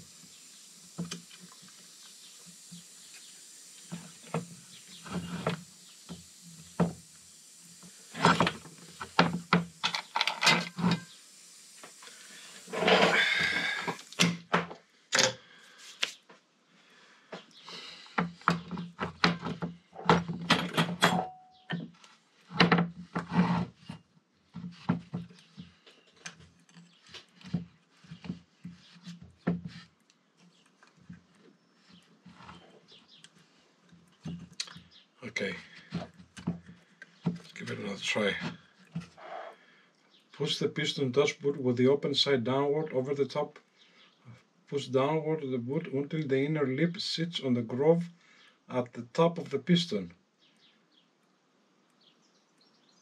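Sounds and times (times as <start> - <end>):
tools clicking and knocking: 8.2 - 11.1, 18.2 - 21.9.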